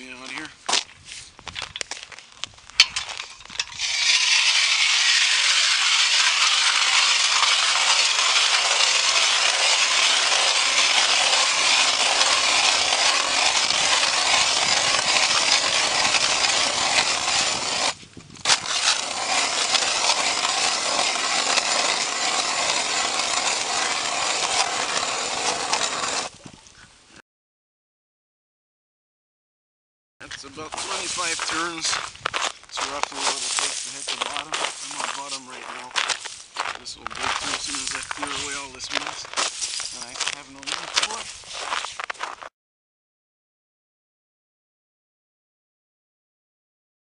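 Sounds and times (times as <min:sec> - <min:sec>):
ice auger knock: 0:02.8 - 0:26.3
ice auger scraping ice: 0:02.8 - 0:26.3, 0:30.6 - 0:42.5.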